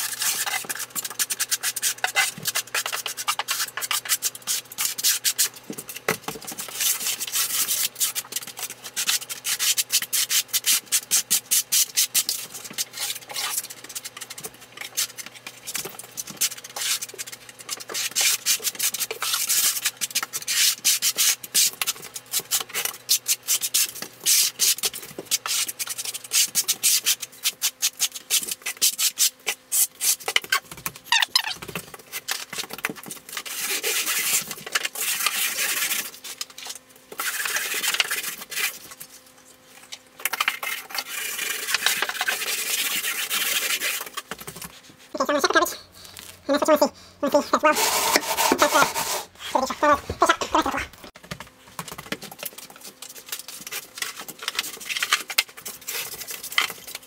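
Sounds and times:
trowel scraping mortar: 0:00.0 - 0:05.6, 0:32.1 - 0:39.2, 0:39.8 - 0:51.1.

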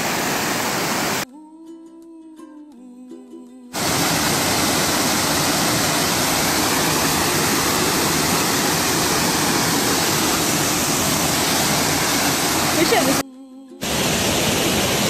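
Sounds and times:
waterfall rushing: 0:00.0 - 0:01.2, 0:03.8 - 0:13.2, 0:13.8 - 0:15.0.

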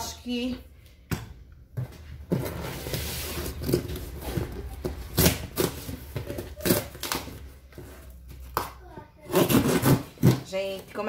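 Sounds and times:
packing tape tearing: 0:05.1 - 0:07.4, 0:09.2 - 0:10.5.

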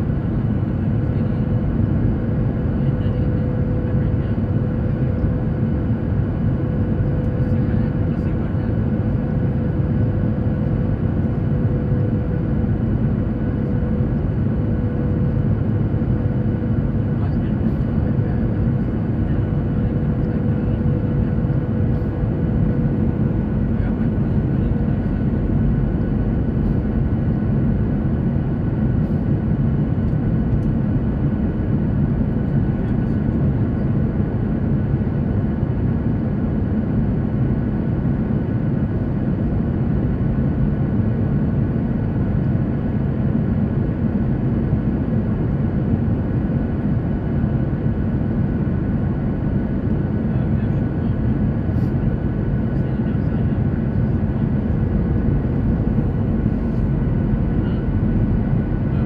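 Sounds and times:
jet airliner cabin rumble: 0:00.0 - 0:59.0.

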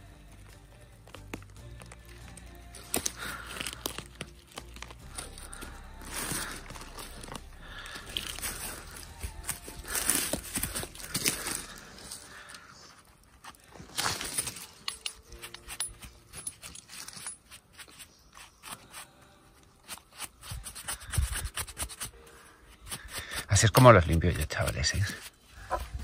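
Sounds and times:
scraping soil off mushroom: 0:16.8 - 0:26.0.

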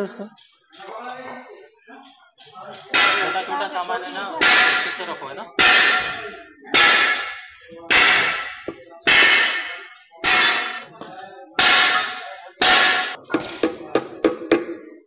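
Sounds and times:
hammer clanging on metal: 0:02.7 - 0:03.7, 0:04.4 - 0:11.0, 0:11.6 - 0:14.8.

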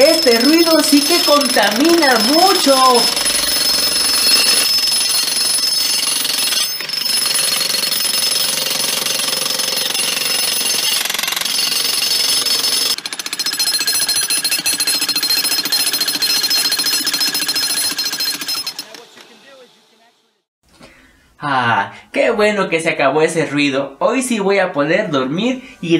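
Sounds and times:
jackhammer chiseling concrete: 0:00.0 - 0:19.7.

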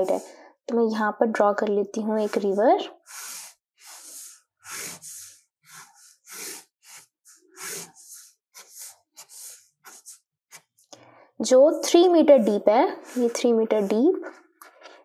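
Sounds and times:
marker scratching on paper: 0:00.0 - 0:00.3, 0:02.0 - 0:10.9, 0:12.4 - 0:14.4.

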